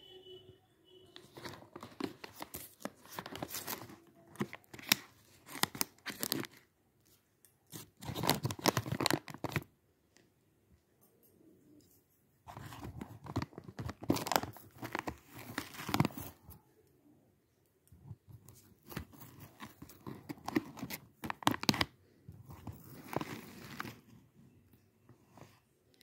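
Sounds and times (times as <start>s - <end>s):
bag crinkling: 1.2s - 6.6s, 7.7s - 9.6s, 12.5s - 16.5s, 18.6s - 24.0s.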